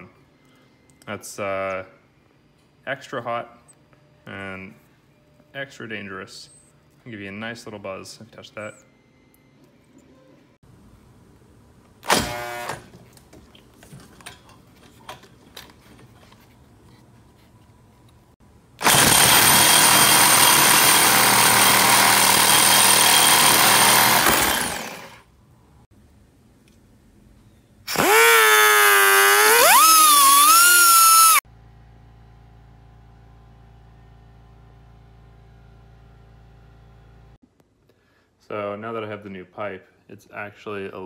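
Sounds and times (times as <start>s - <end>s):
reciprocating saw cutting metal pipe: 18.8s - 25.3s.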